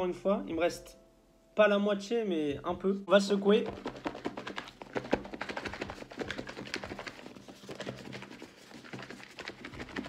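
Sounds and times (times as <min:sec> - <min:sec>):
food rattling in shaken bowl: 0:03.6 - 0:10.0.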